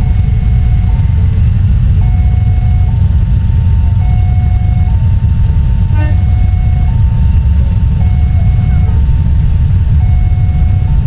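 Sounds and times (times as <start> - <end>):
two-tone level crossing alarm: 0.0 - 1.2, 2.0 - 3.0, 4.0 - 5.0, 6.0 - 7.1, 8.0 - 9.0, 9.9 - 11.0
loud low rumble: 0.0 - 11.0.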